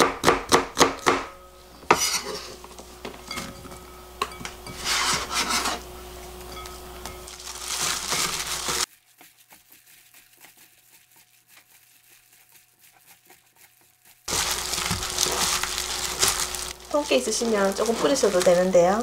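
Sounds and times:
plastic glove crinkling: 0:01.5 - 0:19.0
knife scraping onion into bowl: 0:01.6 - 0:08.9
wet squishing: 0:07.4 - 0:18.7.

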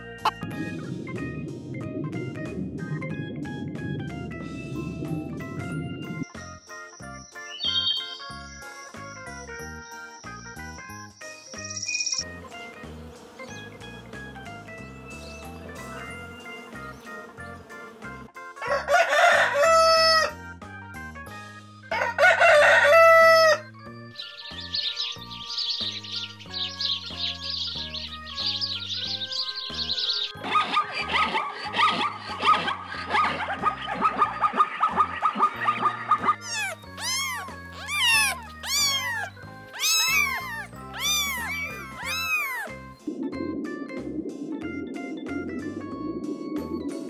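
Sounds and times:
rooster crowing: 0:18.6 - 0:20.3, 0:21.9 - 0:23.6, 0:36.5 - 0:42.7
kitten mewing: 0:36.4 - 0:42.9.

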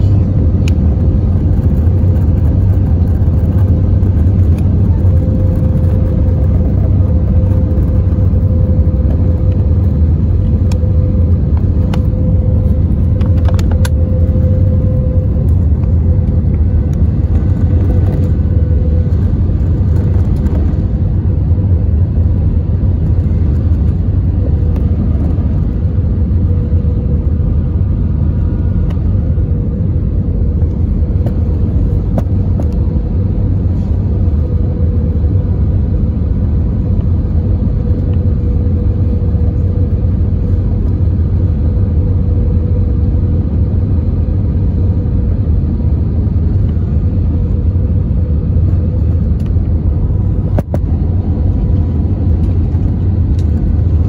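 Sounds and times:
airliner cabin engine rumble: 0:00.0 - 0:54.0
constant droning tone: 0:00.0 - 0:54.0.

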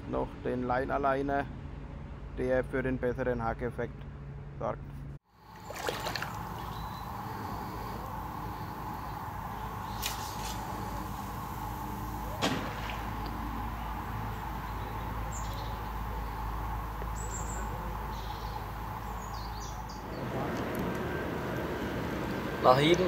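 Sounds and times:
low outdoor rumble: 0:00.0 - 0:23.0
bird chirps: 0:06.4 - 0:10.8, 0:13.6 - 0:20.3.

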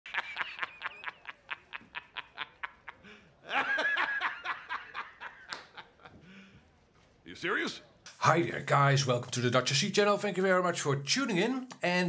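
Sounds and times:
bursts of laughter: 0:00.1 - 0:06.2.

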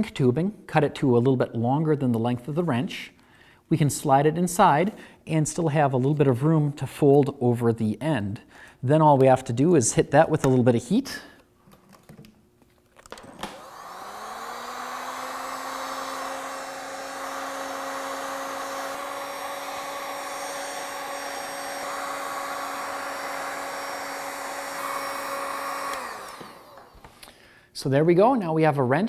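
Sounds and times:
heat gun fan whining: 0:13.0 - 0:27.5.

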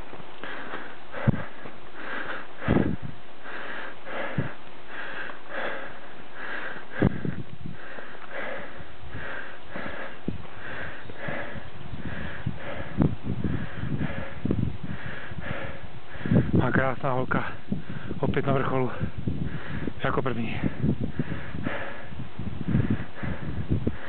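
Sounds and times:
dull knocks of footsteps: 0:00.0 - 0:02.9
heavy rhythmic breathing: 0:00.0 - 0:24.0.

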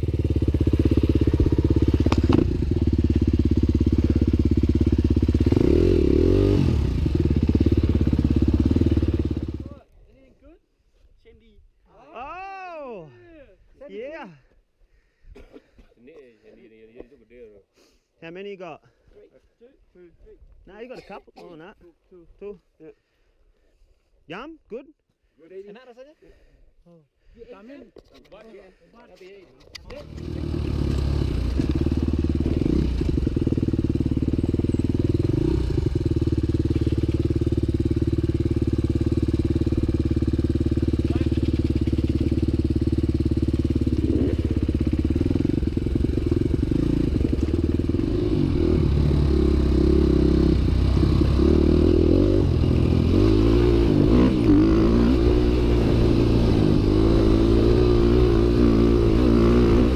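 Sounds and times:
motorcycle engine revving: 0:00.0 - 0:09.7, 0:29.9 - 0:59.9.

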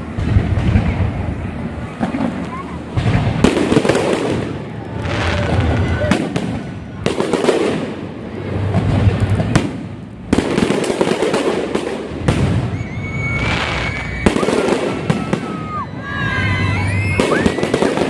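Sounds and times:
firework crackling: 0:00.0 - 0:18.0
high whistling tone: 0:12.7 - 0:14.4.

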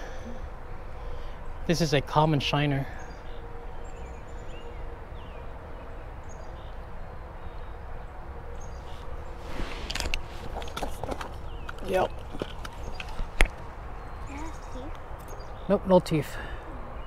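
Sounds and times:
camera rustling and knocks: 0:09.5 - 0:13.7
faint bird chirps: 0:14.0 - 0:15.8.

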